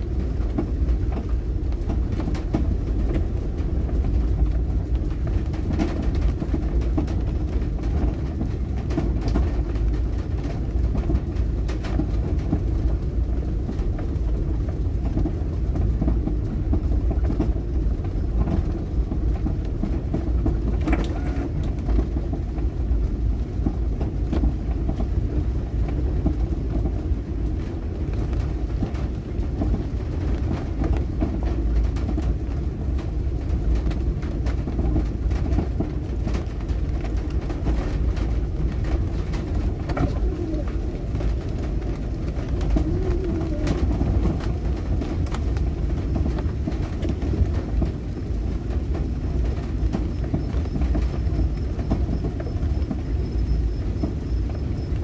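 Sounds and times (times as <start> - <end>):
car interior rumble: 0.0 - 55.0.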